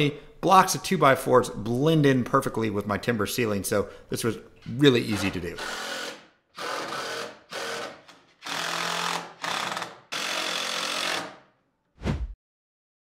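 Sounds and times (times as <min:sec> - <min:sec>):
cordless drill driving screws: 0:05.1 - 0:11.4.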